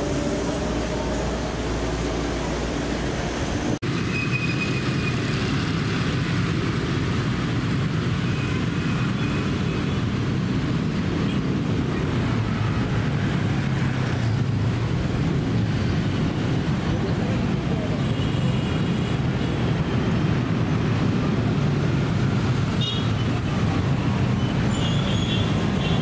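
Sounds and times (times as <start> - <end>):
train car hum: 0.0 - 3.8
city road traffic rumble: 0.0 - 26.0.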